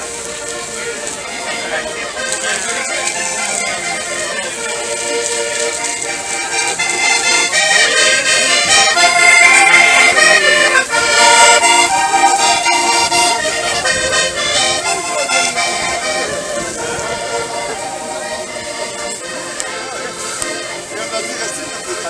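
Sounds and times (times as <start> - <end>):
accordion-led folk music: 0.0 - 22.0.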